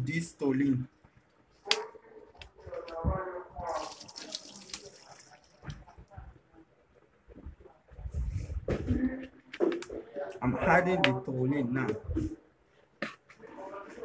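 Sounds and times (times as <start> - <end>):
liquid glugging and splashing: 3.6 - 6.1.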